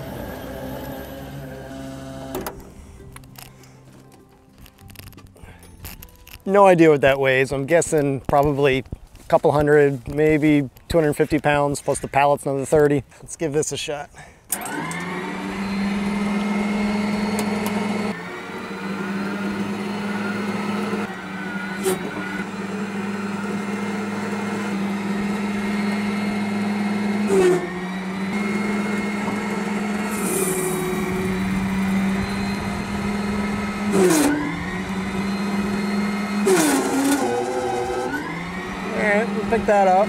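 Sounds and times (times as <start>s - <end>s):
electric motor hum with whine: 0.0s - 3.4s, 14.6s - 40.0s.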